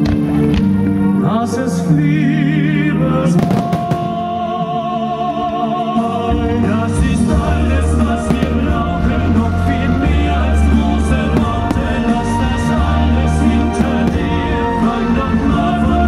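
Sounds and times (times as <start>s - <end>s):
deep bass line: 6.4s - 16.0s.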